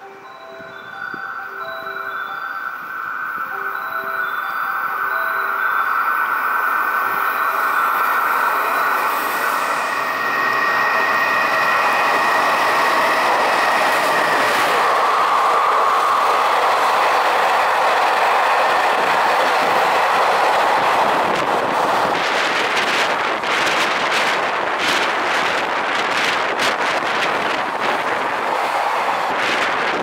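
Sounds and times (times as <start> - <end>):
thin high tone: 0.0 - 21.1
train wheels on rails: 0.0 - 30.0.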